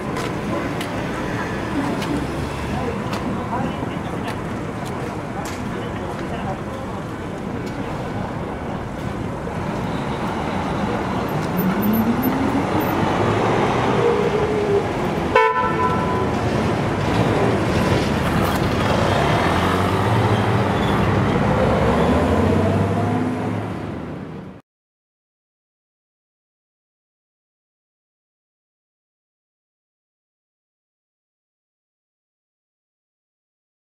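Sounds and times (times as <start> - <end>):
vehicle engines pulling away: 9.6 - 15.3, 16.2 - 24.2.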